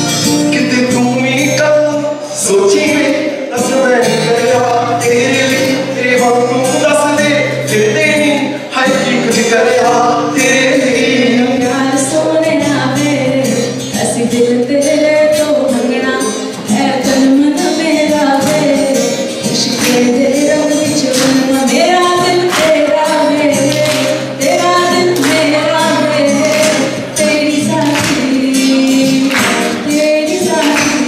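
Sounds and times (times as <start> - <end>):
acoustic guitar: 0.0 - 31.0
group singing: 0.5 - 31.0
hand claps: 5.4 - 5.8, 18.4 - 18.8, 19.5 - 31.0.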